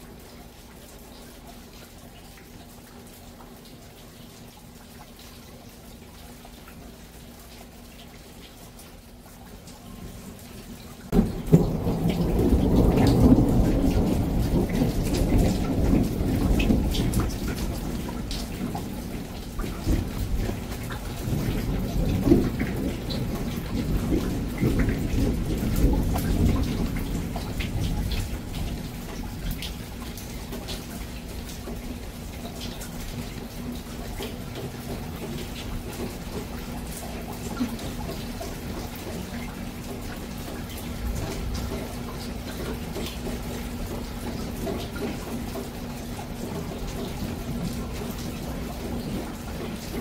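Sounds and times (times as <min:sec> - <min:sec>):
rain pattering and dripping: 0:00.0 - 0:50.0
thunder crack and rumble: 0:11.1 - 0:30.1.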